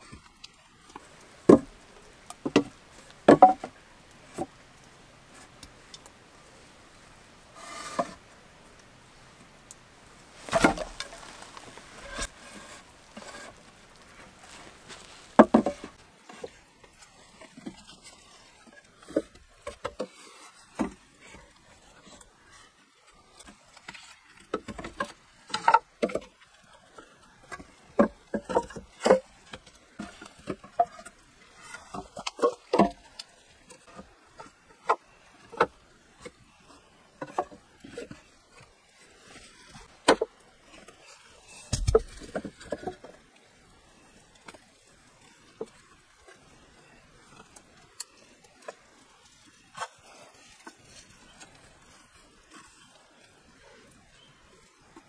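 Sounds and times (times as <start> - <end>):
wooden poles knocking together: 1.0 - 4.6, 10.4 - 13.6, 14.5 - 16.6, 24.4 - 26.3, 27.5 - 33.1, 39.8 - 40.3, 41.6 - 43.2.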